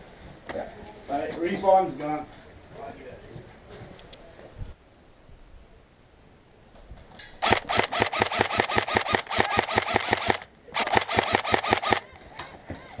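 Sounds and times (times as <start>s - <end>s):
airsoft gun firing bursts: 7.4s - 12.2s.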